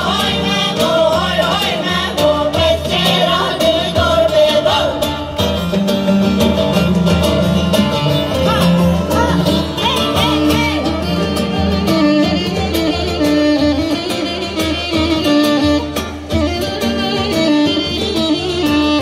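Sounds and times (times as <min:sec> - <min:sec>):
women singing: 0:00.0 - 0:05.4
long-necked lute melody: 0:00.0 - 0:19.0.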